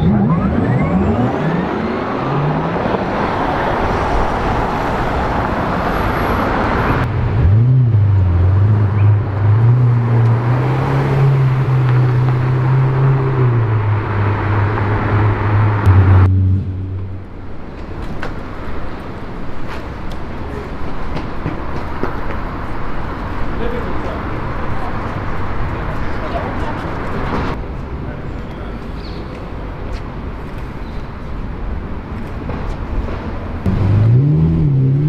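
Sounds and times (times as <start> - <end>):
street traffic noise: 0.0 - 35.0
sports car engine rumbling: 7.0 - 18.3, 33.6 - 35.0.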